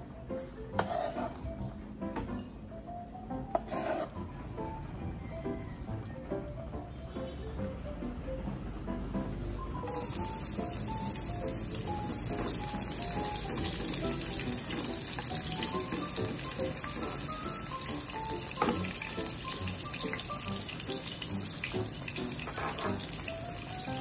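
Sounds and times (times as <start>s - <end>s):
light background music: 0.0s - 24.0s
onion sizzling in hot oil: 9.8s - 24.0s
spatula tapping pan: 12.2s - 19.2s.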